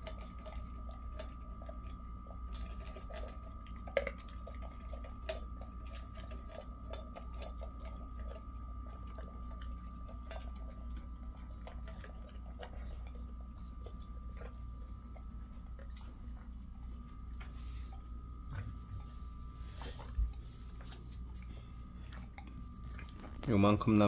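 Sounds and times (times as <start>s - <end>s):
kibble clicking on metal bowl: 0.0s - 14.5s
dog crunching kibble: 0.0s - 24.0s.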